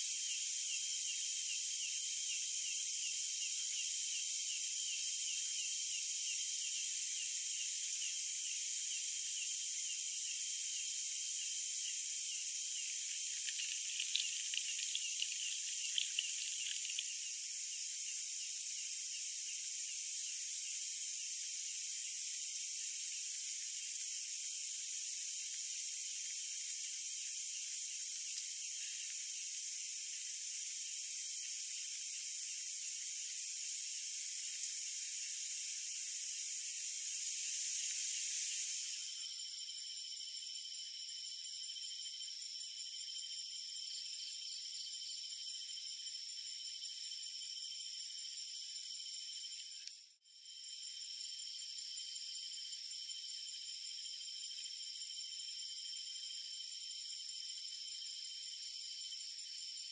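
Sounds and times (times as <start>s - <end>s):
insects chirping: 0.0s - 59.9s
tea pouring into cup: 12.8s - 17.2s.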